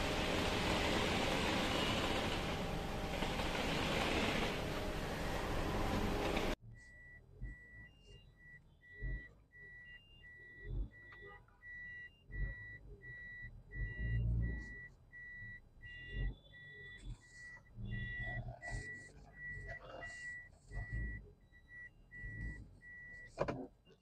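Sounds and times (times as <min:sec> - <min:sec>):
electronic warning beeper: 0:04.2 - 0:23.4.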